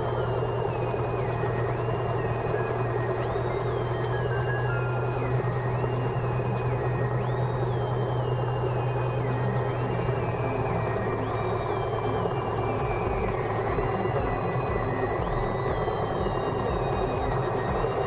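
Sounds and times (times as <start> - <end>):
propeller plane engine idling: 0.0 - 18.0.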